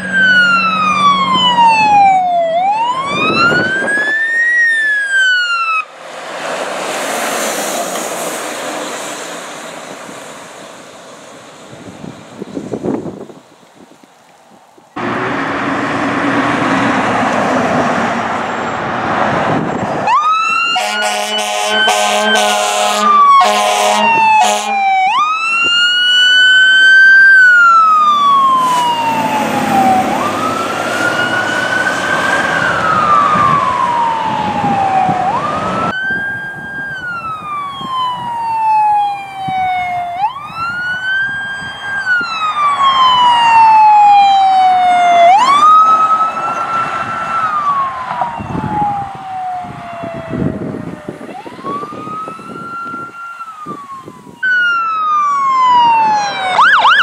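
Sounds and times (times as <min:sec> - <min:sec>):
siren wailing: 0:00.0 - 0:05.9, 0:20.0 - 0:57.0
fire engine horn: 0:20.0 - 0:26.9, 0:27.6 - 0:35.9.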